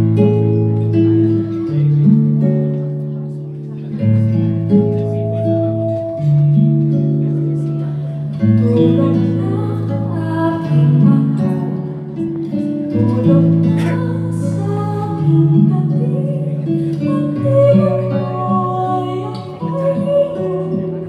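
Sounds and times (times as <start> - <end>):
acoustic guitar ballad over pa: 0.0 - 21.0.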